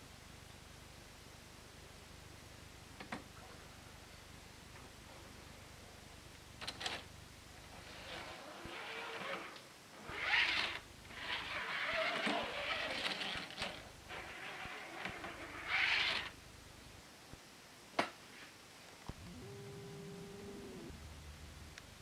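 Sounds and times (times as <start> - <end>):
toy train wheels rolling on track: 10.1 - 16.3.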